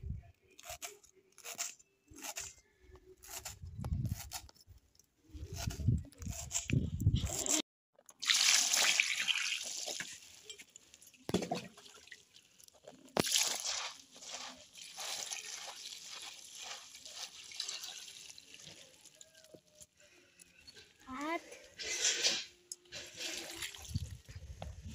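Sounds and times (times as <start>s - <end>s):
water gushing: 8.2s - 10.3s
water trickling through colander: 13.7s - 19.7s.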